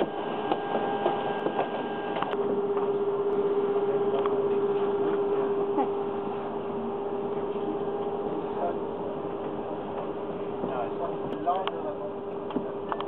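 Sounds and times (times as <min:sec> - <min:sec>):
steady machine hum: 0:00.0 - 0:13.0
steady tone: 0:02.2 - 0:12.1.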